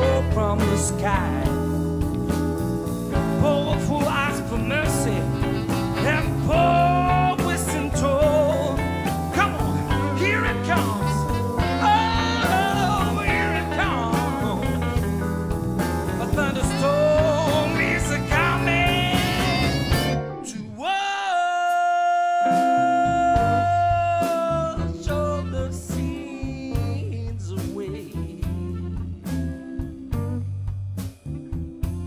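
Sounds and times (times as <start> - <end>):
blues band playing live: 0.0 - 20.6, 22.4 - 32.0
lead solo with bending notes: 0.0 - 20.8.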